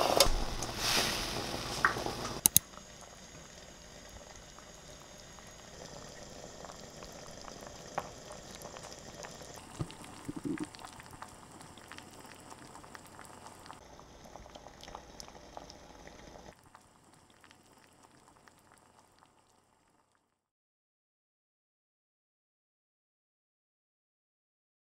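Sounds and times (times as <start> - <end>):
broth bubbling in a pot: 0.4 - 20.5.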